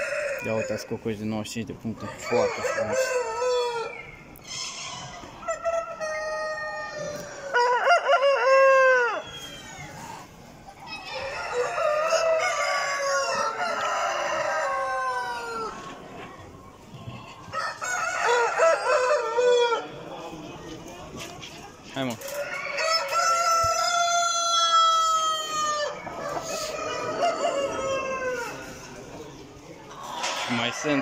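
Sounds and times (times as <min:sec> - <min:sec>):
roosters crowing: 0:00.0 - 0:01.0, 0:01.9 - 0:20.2, 0:22.1 - 0:31.0.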